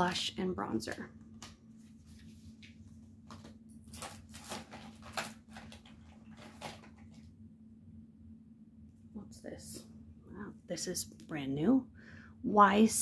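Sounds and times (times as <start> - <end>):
faint steady hum: 0.0 - 13.0
packaging clicks and rustles: 3.3 - 7.3.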